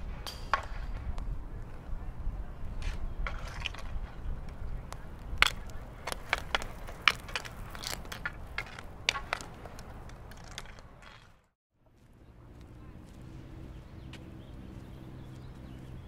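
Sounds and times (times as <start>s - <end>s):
hockey sticks and ball clacking: 0.0s - 11.5s
steady low rumble: 11.9s - 16.0s.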